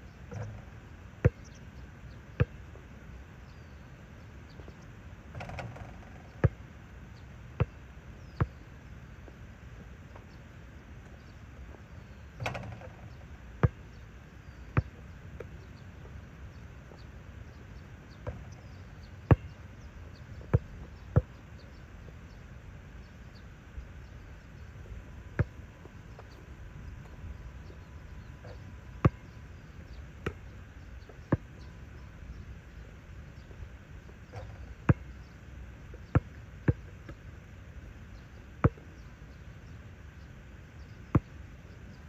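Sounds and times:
basketball bouncing on asphalt: 0.3s - 1.5s, 2.4s - 2.6s, 5.3s - 6.6s, 18.2s - 18.7s, 19.3s - 19.6s, 20.4s - 21.4s, 25.4s - 25.6s, 34.9s - 35.2s, 38.6s - 38.8s
basketball hoop rattle: 5.3s - 6.3s, 12.4s - 13.1s.

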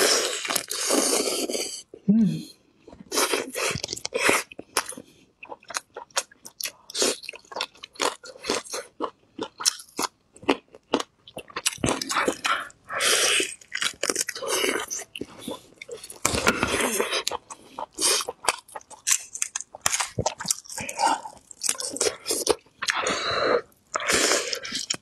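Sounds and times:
chewing and biting meat: 3.1s - 23.0s.

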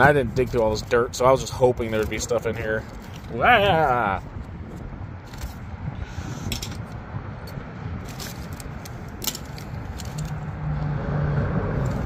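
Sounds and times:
plastic toy parts clicking and rattling: 8.0s - 10.4s.

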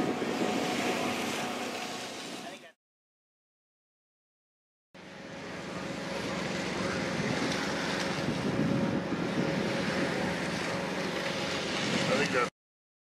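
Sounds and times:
wind on microphone: 0.0s - 2.6s, 6.0s - 12.5s
engine-like hum: 0.0s - 2.8s, 5.0s - 12.5s.

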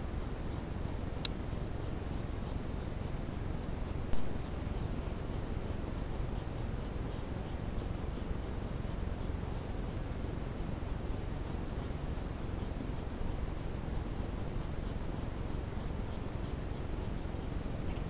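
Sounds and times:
low hiss and rumble: 0.0s - 18.0s
faint high-pitched ticks: 0.2s - 18.0s
sharp click: 1.2s - 1.4s.

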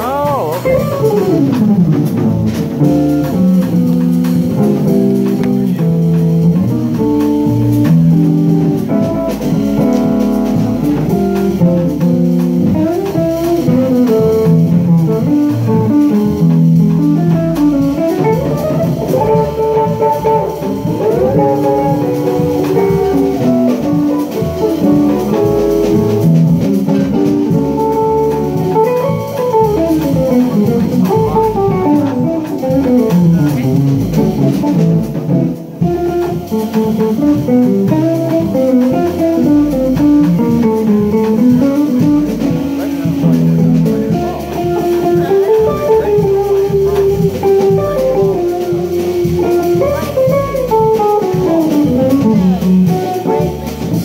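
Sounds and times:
electric guitar solo: 0.0s - 2.3s, 17.7s - 26.1s
drums: 0.0s - 54.0s
upright bass: 0.0s - 54.0s.

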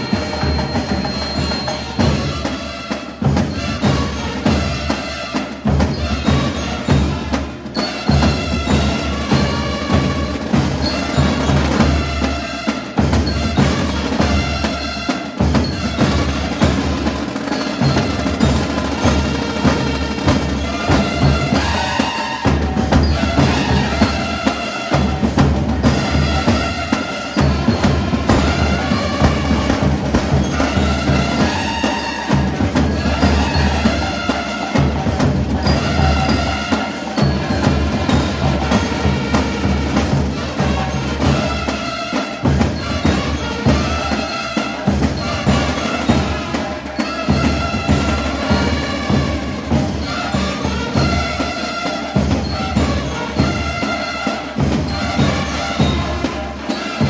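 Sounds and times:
marching band playing: 0.0s - 57.0s
snare drum: 0.0s - 57.0s.

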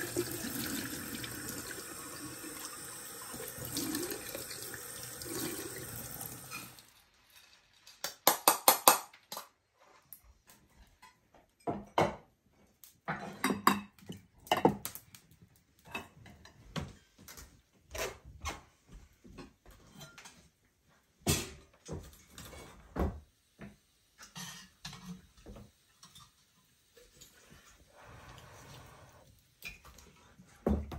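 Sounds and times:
water splashing into steel sink: 0.0s - 6.9s
dishes clinking: 13.1s - 14.8s.

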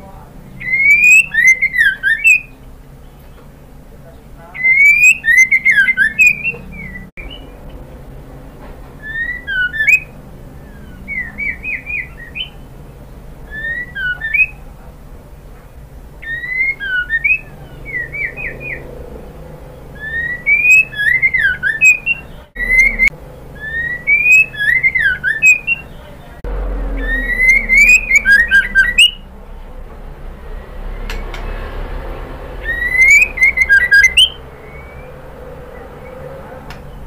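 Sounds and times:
bird singing whistled phrases: 0.6s - 2.6s, 4.6s - 7.6s, 9.0s - 12.6s, 13.5s - 14.6s, 16.2s - 18.9s, 20.0s - 26.1s, 26.9s - 29.2s, 32.6s - 35.2s.

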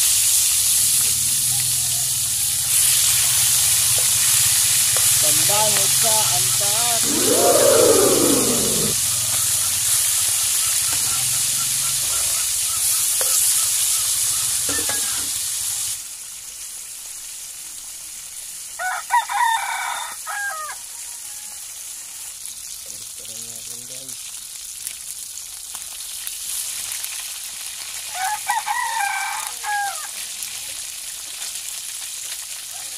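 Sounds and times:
fish sizzling in hot oil: 0.0s - 7.0s, 9.0s - 32.9s
rooster crowing: 7.0s - 9.0s, 18.8s - 21.8s, 28.1s - 30.1s.

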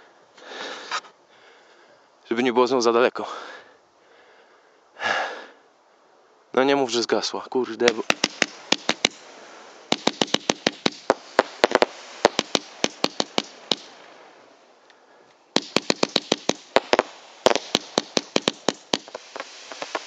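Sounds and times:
faint hiss: 0.0s - 20.0s
fireworks popping rapidly: 7.8s - 14.3s, 15.5s - 20.0s.

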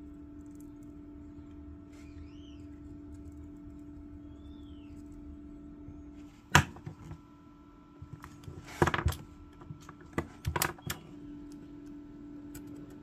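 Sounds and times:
tools handled on wooden bench: 8.0s - 11.0s.

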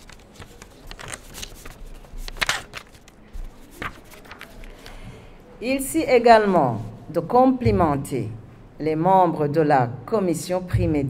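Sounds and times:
paper rustling and crinkling: 0.0s - 5.0s.

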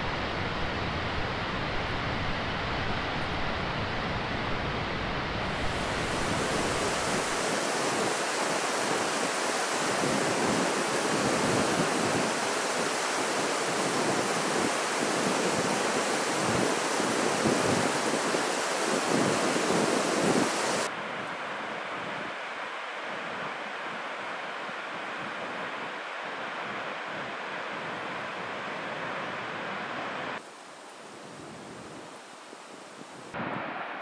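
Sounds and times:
waterfall rushing: 0.0s - 20.9s.

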